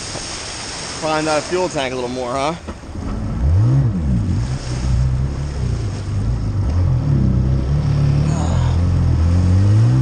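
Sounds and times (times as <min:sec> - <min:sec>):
water rushing along hull: 0:00.0 - 0:10.0.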